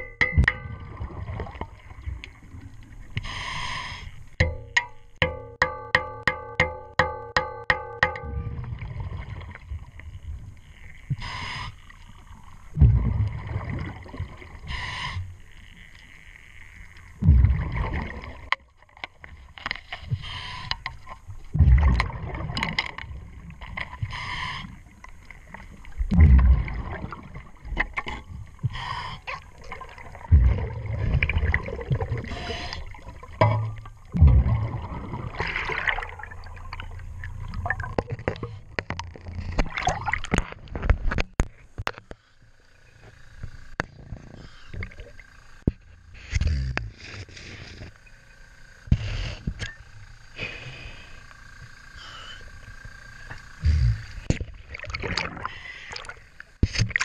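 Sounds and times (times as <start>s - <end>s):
exhaled bubbles rumbling: 0.0s - 3.2s, 8.2s - 14.8s, 17.1s - 19.4s, 21.2s - 24.2s, 24.8s - 41.2s, 53.6s - 57.0s
regulator inhale hiss: 3.2s - 4.2s, 11.2s - 11.9s, 14.6s - 15.4s, 19.9s - 21.0s, 24.0s - 24.8s, 28.7s - 29.4s, 48.8s - 49.6s, 50.3s - 52.6s.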